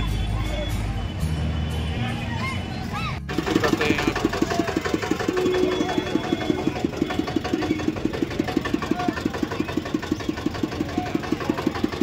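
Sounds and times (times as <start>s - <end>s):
small engine idling: 3.3s - 12.0s.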